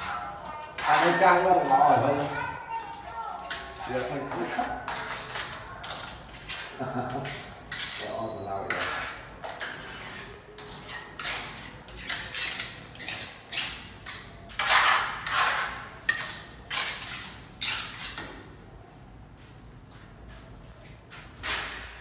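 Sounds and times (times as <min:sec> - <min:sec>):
trowel scraping mortar: 0:00.0 - 0:02.4, 0:03.5 - 0:18.3.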